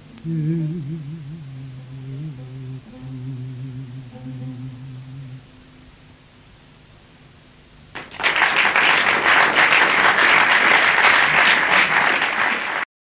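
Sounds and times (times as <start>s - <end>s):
audience applauding: 8.0s - 12.9s.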